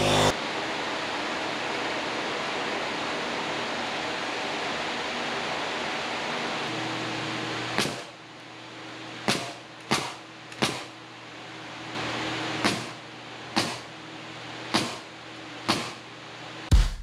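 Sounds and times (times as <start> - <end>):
steady machine noise: 0.0 - 17.0
nail gun bang: 7.8 - 8.1, 9.3 - 10.9, 12.6 - 13.0, 13.6 - 13.9, 14.7 - 15.0, 15.7 - 16.0.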